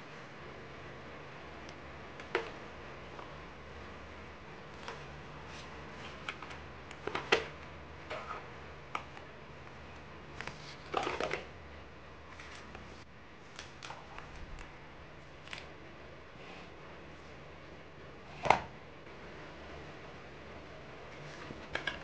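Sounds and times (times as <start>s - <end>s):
paper cards rustling: 12.3s - 12.8s.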